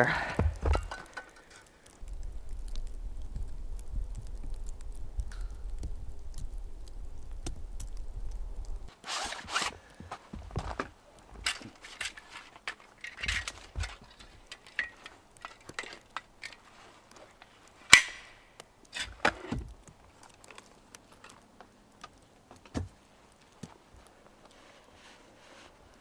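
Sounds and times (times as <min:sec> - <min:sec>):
hand tools clinking and knocking: 0:11.3 - 0:16.6.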